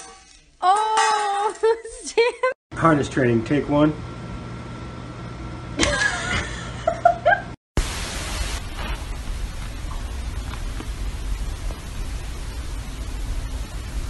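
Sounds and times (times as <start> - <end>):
steady hiss with low rumble: 7.8 - 14.0.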